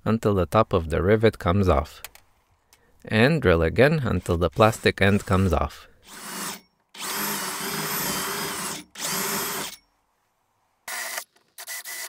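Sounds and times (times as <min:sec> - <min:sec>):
cordless drill whining: 0:06.0 - 0:09.8, 0:10.9 - 0:12.0.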